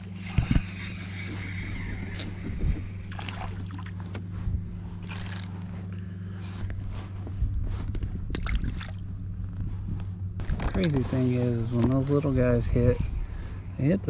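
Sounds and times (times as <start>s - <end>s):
steady low hum: 0.0s - 14.0s
water splashing: 3.0s - 4.1s.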